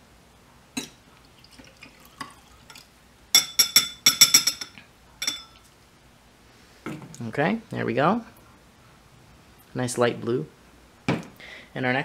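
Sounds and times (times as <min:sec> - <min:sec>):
glass beakers clinking: 0:00.8 - 0:02.8, 0:03.4 - 0:05.6
liquid pouring into beaker: 0:01.2 - 0:02.9.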